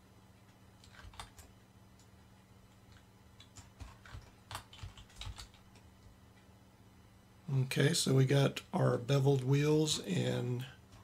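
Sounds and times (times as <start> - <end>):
faint steady hum: 0.0 - 11.0
computer keyboard and mouse clicks: 0.8 - 2.1, 2.7 - 6.5.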